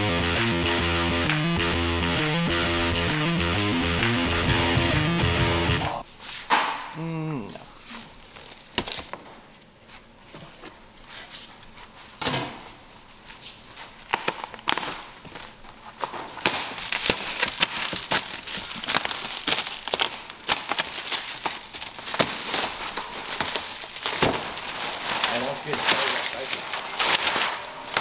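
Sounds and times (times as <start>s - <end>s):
plastic stretch wrap crinkling: 13.6s - 28.0s.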